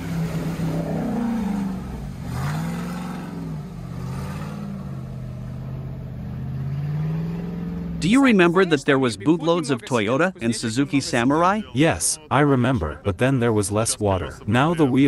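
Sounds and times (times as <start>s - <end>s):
engine revving under load: 0.0s - 8.3s.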